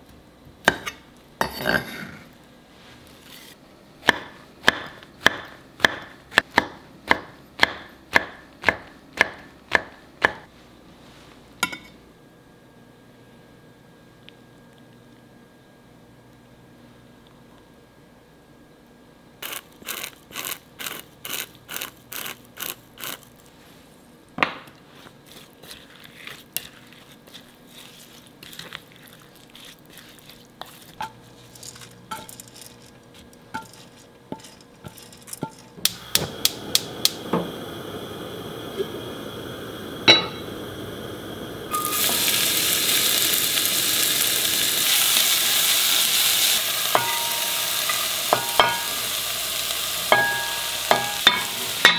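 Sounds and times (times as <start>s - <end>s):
food sizzling in a pan: 19.4s - 23.2s, 35.9s - 51.9s
utensils clinking: 31.0s - 33.0s, 33.6s - 35.8s.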